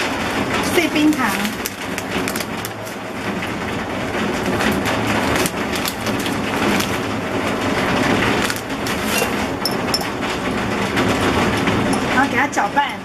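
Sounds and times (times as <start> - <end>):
plastic bag crinkling: 0.6 - 3.2, 4.3 - 10.2.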